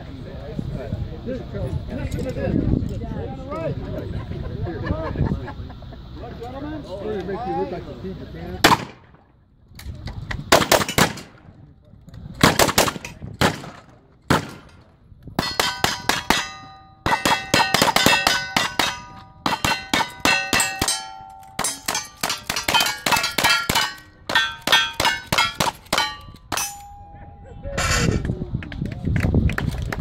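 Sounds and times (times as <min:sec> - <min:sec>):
rifle shots: 0:08.7 - 0:09.2, 0:10.5 - 0:11.4, 0:12.4 - 0:21.0
steel plate clanging and ringing: 0:15.4 - 0:28.2.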